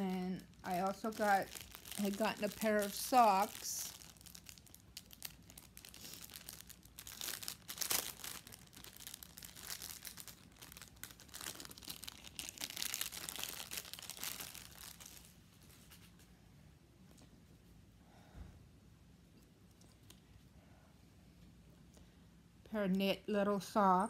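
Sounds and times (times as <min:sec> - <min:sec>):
packaging crinkling: 0:00.0 - 0:16.2.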